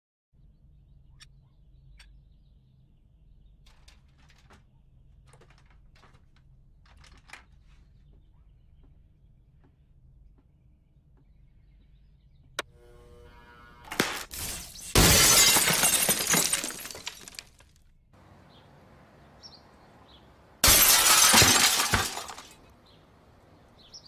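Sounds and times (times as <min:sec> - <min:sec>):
light clicking and rattling: 0:03.6 - 0:07.9.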